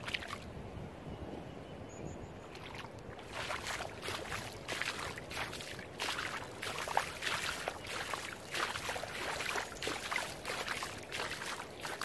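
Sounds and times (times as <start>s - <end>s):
small waves lapping on beach: 2.5s - 12.0s.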